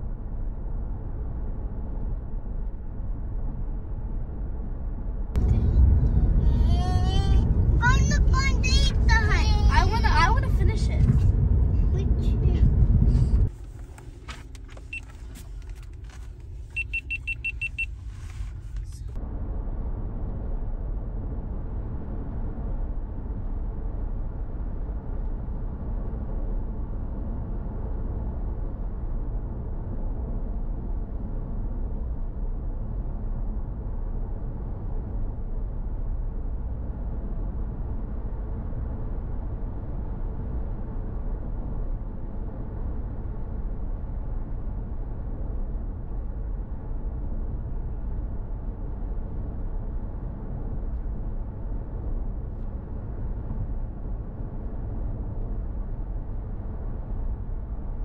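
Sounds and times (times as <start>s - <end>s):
car road and engine rumble: 0.0s - 58.0s
rapid high beeps: 16.8s - 18.0s.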